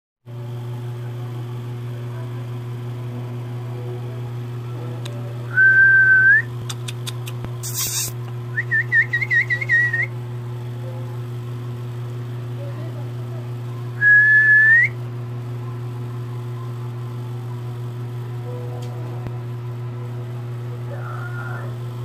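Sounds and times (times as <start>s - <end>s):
steady low hum: 0.3s - 22.0s
person whistling: 5.5s - 6.5s, 14.0s - 15.0s
short hiss: 7.6s - 8.2s.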